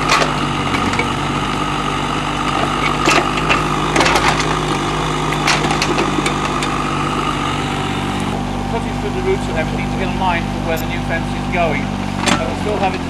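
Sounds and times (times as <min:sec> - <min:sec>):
excavator engine running: 0:00.0 - 0:13.0.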